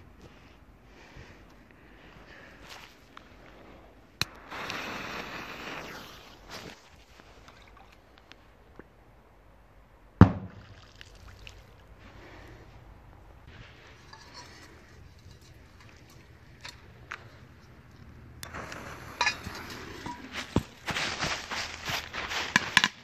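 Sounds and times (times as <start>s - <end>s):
firecracker bang: 10.2s - 10.6s.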